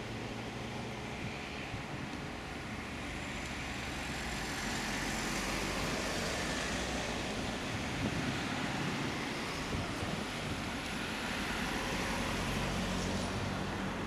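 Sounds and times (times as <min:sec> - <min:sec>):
road traffic noise: 0:00.0 - 0:14.0.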